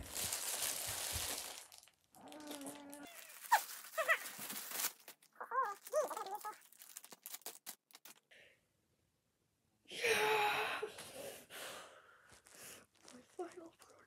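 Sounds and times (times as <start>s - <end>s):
plastic packaging crinkling: 0.0s - 8.3s, 12.3s - 14.0s.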